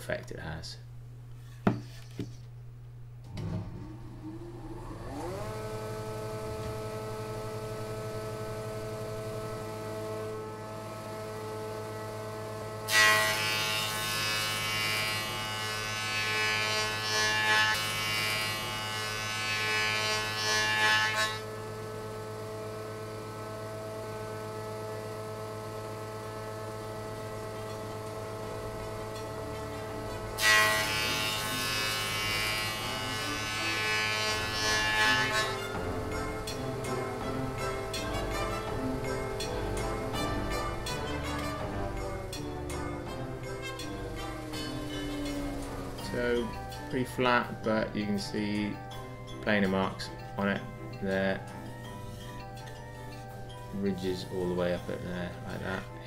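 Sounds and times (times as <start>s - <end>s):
planer motor whining: 3.2s - 47.6s
planer blades cutting board: 4.7s - 23.0s, 23.6s - 46.9s.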